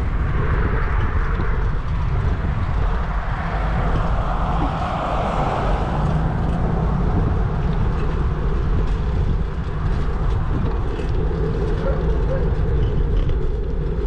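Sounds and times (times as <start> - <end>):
wind rushing: 0.0 - 11.3
bicycle road noise: 0.0 - 14.0.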